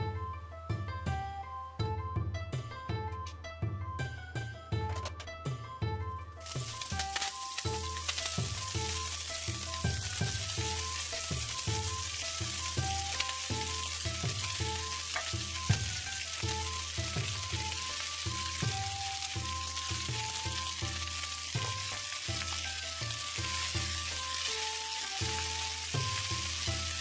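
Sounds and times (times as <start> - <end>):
plucked-string background music: 0.0 - 27.0
cabbage sizzling in hot oil: 6.4 - 27.0.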